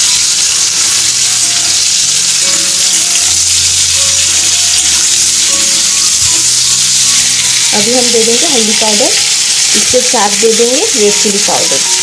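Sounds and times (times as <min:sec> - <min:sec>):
spatula stirring: 0:00.0 - 0:12.0
vegetables sizzling in oil: 0:00.0 - 0:12.0.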